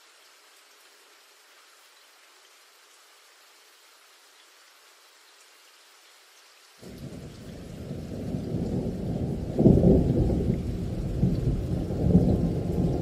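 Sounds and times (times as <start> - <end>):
rain: 0.0 - 13.0
thunder rumbling: 6.8 - 13.0.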